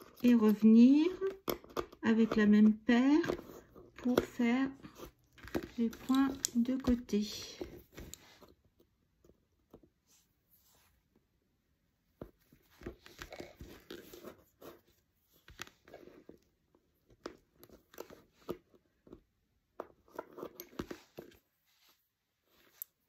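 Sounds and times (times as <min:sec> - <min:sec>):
lace bobbins clicking: 0:00.0 - 0:08.3
soft rustling: 0:09.7 - 0:11.3, 0:19.9 - 0:23.0.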